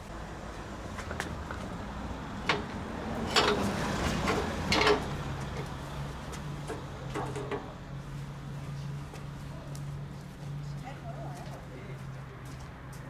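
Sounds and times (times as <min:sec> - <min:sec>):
metal knocks and clanks: 0:02.4 - 0:05.7, 0:06.6 - 0:07.8.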